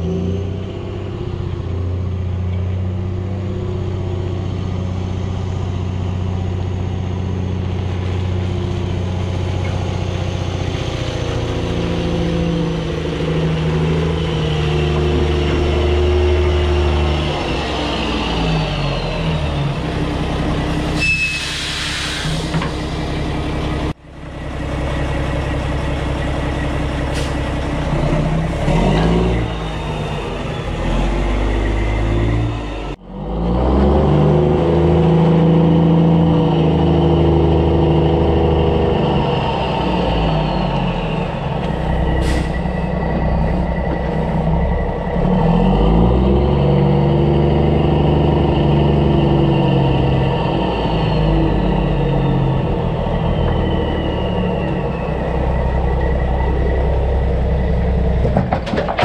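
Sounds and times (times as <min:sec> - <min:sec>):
diesel truck engine running: 0:00.0 - 0:59.0
air hiss: 0:21.0 - 0:22.9.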